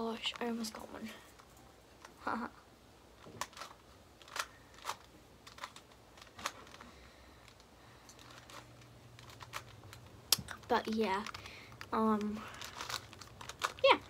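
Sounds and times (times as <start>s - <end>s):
puzzle cube clicking: 3.2s - 6.8s.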